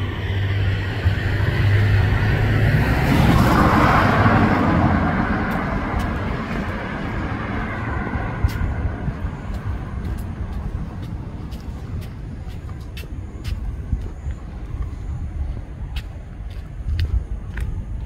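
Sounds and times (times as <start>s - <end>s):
tyre noise on road: 0.0s - 18.0s
vehicle engine hum passing: 0.0s - 18.0s.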